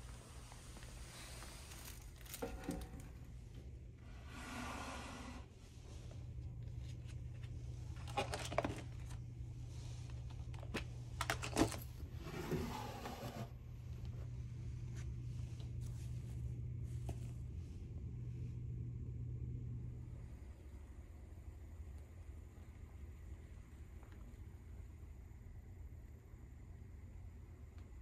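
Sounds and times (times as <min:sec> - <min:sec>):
steady low hum: 0:00.0 - 0:28.0
wooden drawer sliding open: 0:12.2 - 0:13.5.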